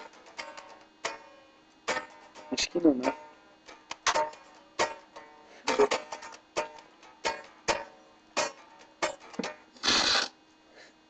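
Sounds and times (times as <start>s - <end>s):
electric guitar strummed: 0.0s - 10.2s
loud noisy rasp: 9.8s - 10.4s.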